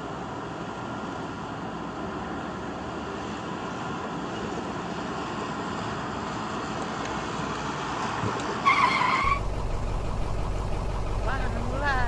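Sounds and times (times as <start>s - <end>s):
wavering high squeal: 8.6s - 12.0s.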